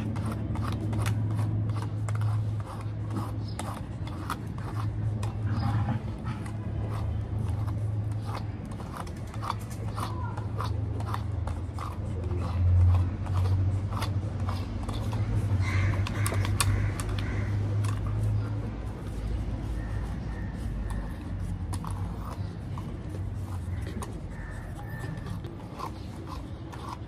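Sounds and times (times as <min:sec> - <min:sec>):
brush scratching through fur: 0:00.0 - 0:27.0.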